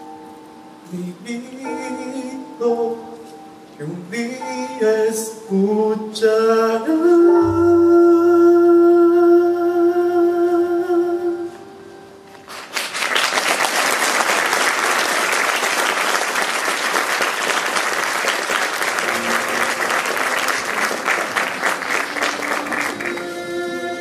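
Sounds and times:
music: 0.0s - 13.1s, 18.9s - 24.0s
audience applauding: 12.3s - 23.8s.

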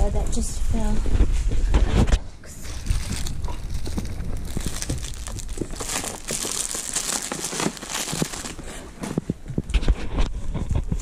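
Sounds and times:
plastic wrapping crinkling: 2.5s - 9.4s.

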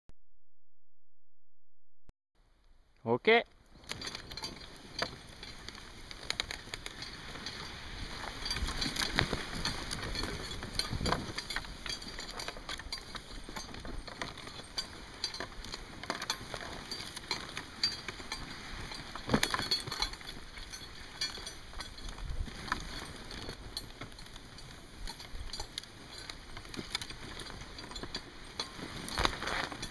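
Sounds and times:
sled knocks and rattles: 3.8s - 29.9s
sled rushing on snow: 4.2s - 29.9s.

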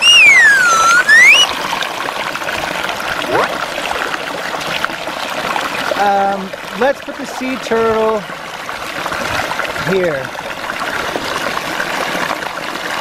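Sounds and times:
high whistle-like tone: 0.0s - 1.5s.

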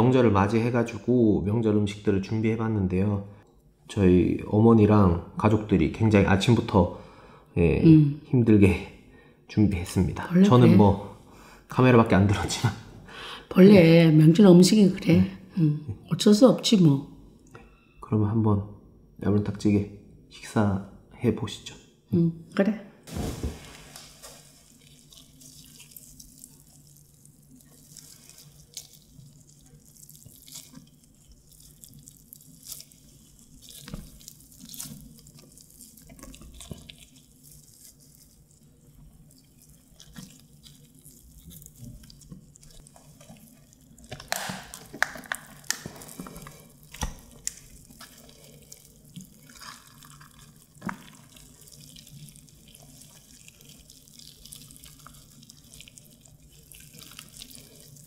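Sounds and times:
plastic gloves rustling: 23.1s - 58.0s
wet crackling of fish flesh: 23.1s - 58.0s.

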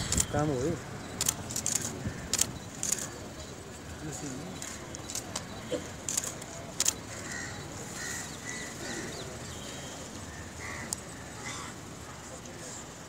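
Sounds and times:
sharp clicks: 0.0s - 0.4s, 1.2s - 3.1s, 6.1s - 7.0s.

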